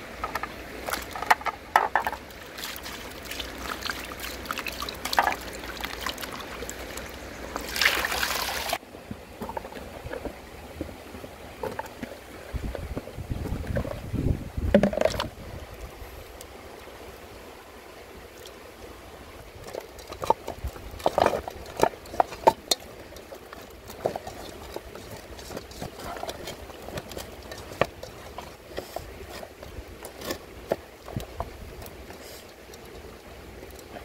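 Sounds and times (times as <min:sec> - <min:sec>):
wet squelching of hand rubbing fish: 0:02.2 - 0:08.8, 0:19.6 - 0:34.0.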